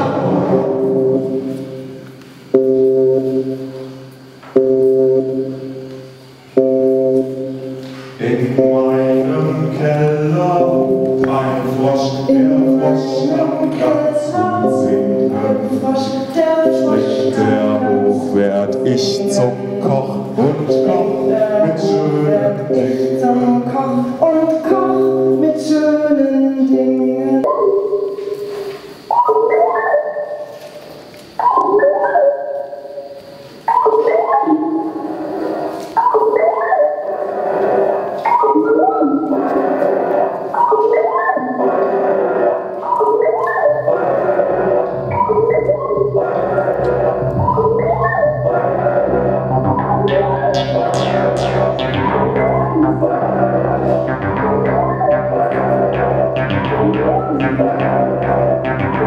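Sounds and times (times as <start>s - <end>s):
steady low drone: 0.0s - 3.9s, 43.9s - 59.0s
low synthesized chord: 0.0s - 25.6s, 43.9s - 59.0s
voices singing in harmony: 8.2s - 27.6s, 39.1s - 59.0s.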